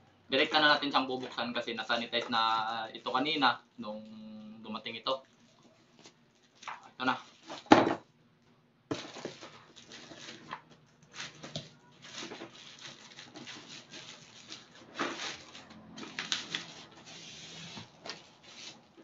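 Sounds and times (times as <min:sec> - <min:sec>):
plastic packaging crinkling and tearing: 0:04.8 - 0:07.7, 0:08.9 - 0:19.0.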